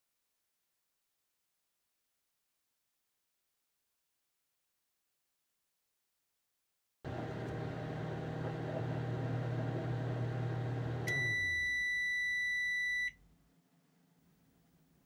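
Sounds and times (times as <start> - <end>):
microwave oven humming: 7.1 - 13.1
microwave long beep: 7.1 - 13.2.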